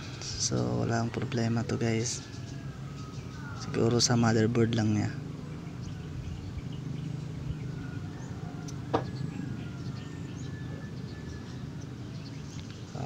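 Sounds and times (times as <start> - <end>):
cooling fan humming: 0.0 - 13.0.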